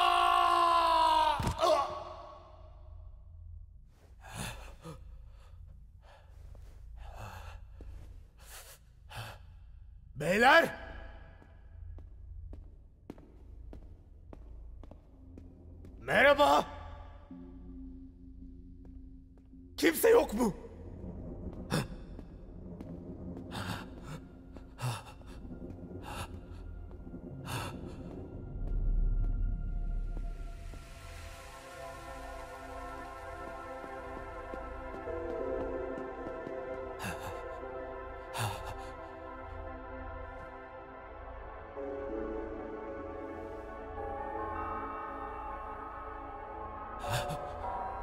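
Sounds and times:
nervous breathing: 4.0 - 10.1, 21.0 - 28.6, 36.5 - 39.8
low ambient drone: 16.7 - 48.0.

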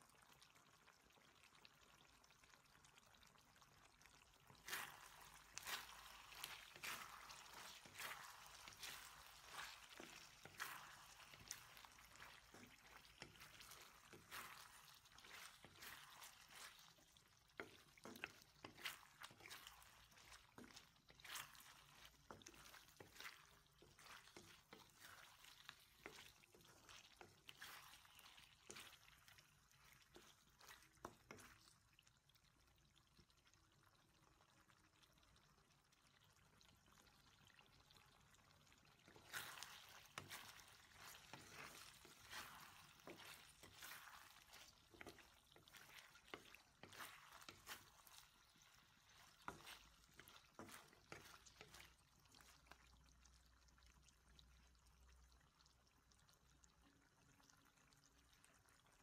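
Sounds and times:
sauce bubbling: 0.0 - 59.0
wooden spatula scraping a wok: 4.5 - 31.7, 39.0 - 52.5.

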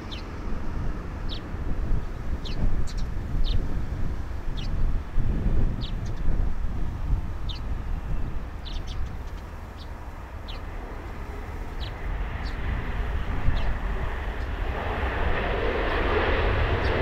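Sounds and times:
small birds chirping: 0.0 - 0.5, 1.2 - 5.0, 5.7 - 6.4, 7.3 - 14.7, 15.8 - 17.0
jet engines hissing: 0.0 - 17.0
wind rumble on microphone: 0.0 - 17.0.

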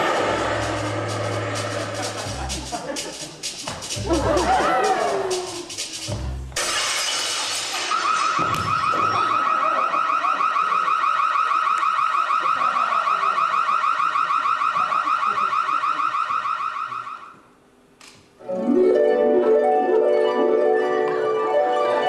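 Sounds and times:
warbling alarm tone: 7.8 - 17.3.

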